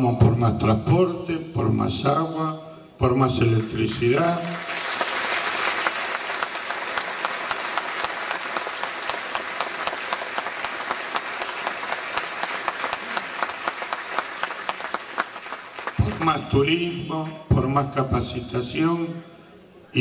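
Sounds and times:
audience applauding: 3.6s - 16.5s.

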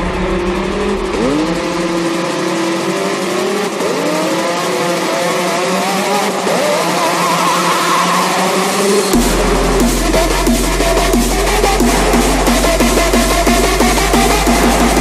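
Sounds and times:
low hum: 0.0s - 3.3s
noisy wash: 0.0s - 15.0s
rising electronic pitched sweeps: 0.0s - 15.0s.

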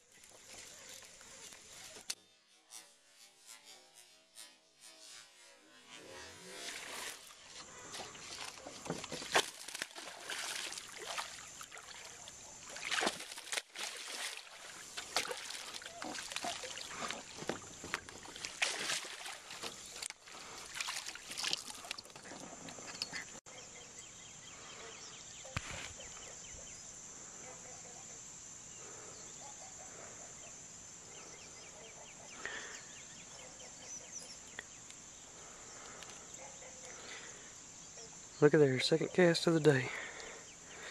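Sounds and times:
high insect chorus: 0.0s - 2.2s, 5.8s - 40.9s.

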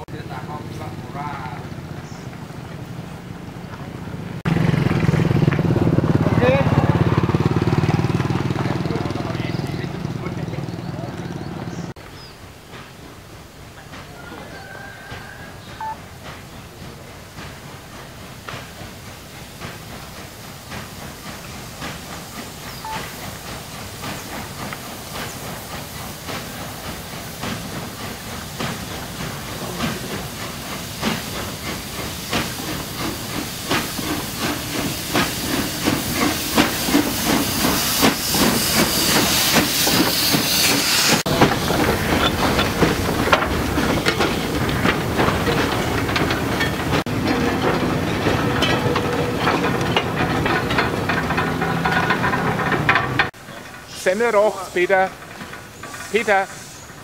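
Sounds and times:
steam locomotive chuffing: 0.0s - 57.0s
loud hiss of steam: 5.8s - 47.3s, 53.2s - 57.0s.

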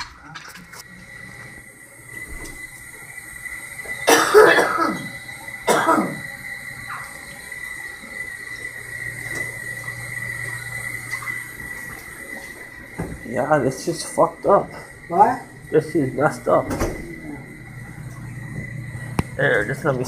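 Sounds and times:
steady high tone: 0.8s - 20.0s
person coughing: 4.0s - 6.2s.

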